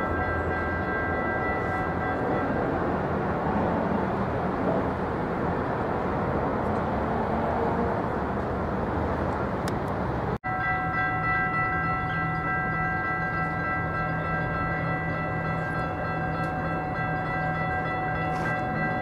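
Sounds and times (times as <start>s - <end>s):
railroad crossing bell ringing: 0.0s - 4.5s, 10.4s - 19.0s.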